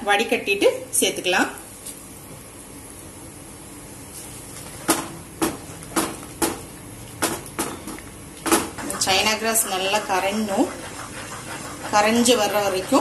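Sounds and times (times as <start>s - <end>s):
spatula knocking against pan: 8.5s - 13.0s.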